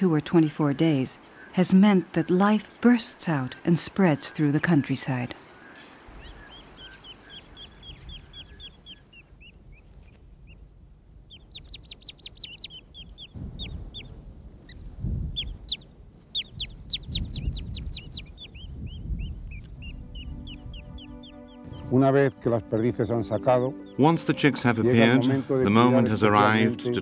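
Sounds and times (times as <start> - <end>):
chicks peeping: 6.1 - 22.0
low rumble: 7.7 - 21.1.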